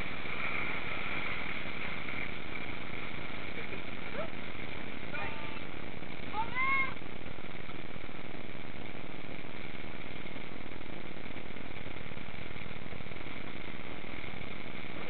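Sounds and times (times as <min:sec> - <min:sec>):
water rushing: 0:00.0 - 0:14.9.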